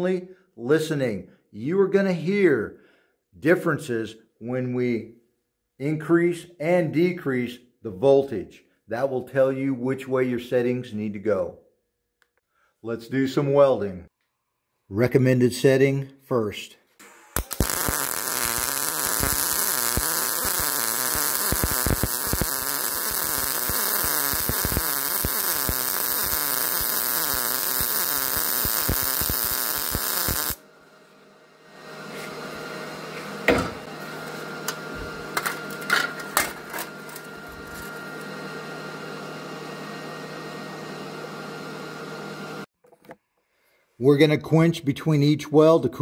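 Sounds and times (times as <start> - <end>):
welding arc crackling: 17.0 - 30.6, 35.4 - 38.0.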